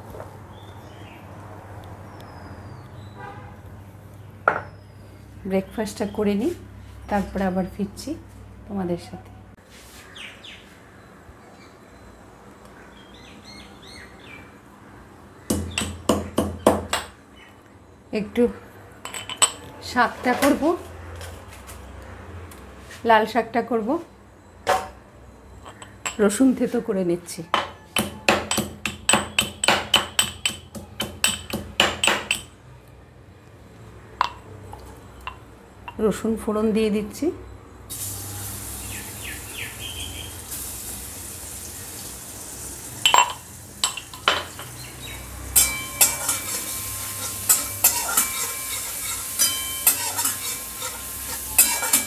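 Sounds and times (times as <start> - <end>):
metal pestle pounding in mortar: 27.6 - 32.5.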